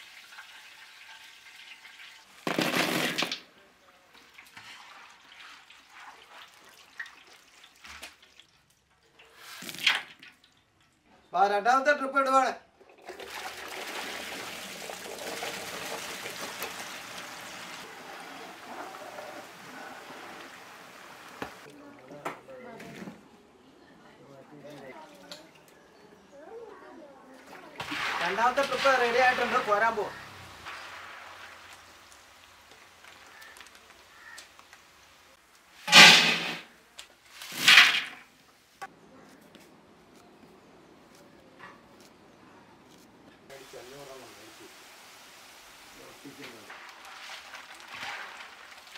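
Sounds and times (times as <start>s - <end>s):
plantain sizzling in hot oil: 0.0s - 2.6s, 13.8s - 21.7s, 27.8s - 35.2s.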